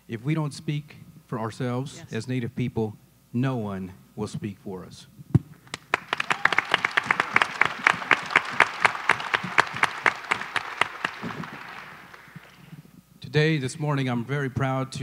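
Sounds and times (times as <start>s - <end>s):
sharp claps: 5.5s - 12.8s
audience applauding: 5.7s - 12.8s.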